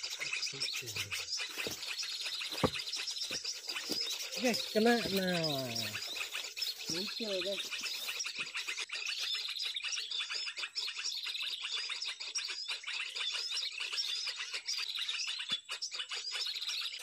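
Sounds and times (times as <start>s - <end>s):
high bird chirping: 0.0s - 17.0s.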